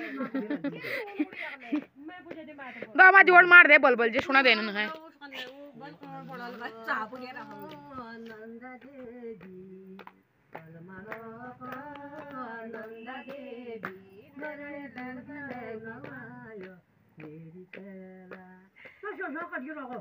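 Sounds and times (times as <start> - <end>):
hand claps: 1.2 - 3.0, 4.9 - 20.0
women singing folk song: 4.5 - 20.0.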